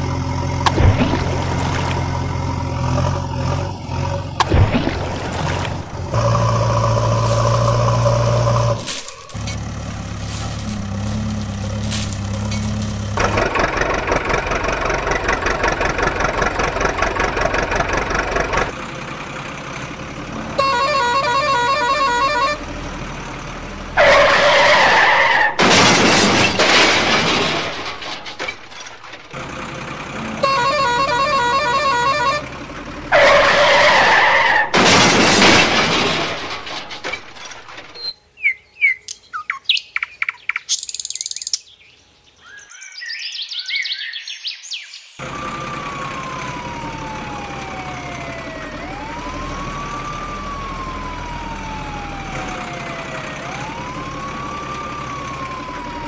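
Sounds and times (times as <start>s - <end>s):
truck engine running: 0.0s - 38.0s, 45.2s - 56.0s
truck horn blowing: 20.4s - 22.9s, 30.2s - 33.5s
bird chirps: 38.0s - 45.2s.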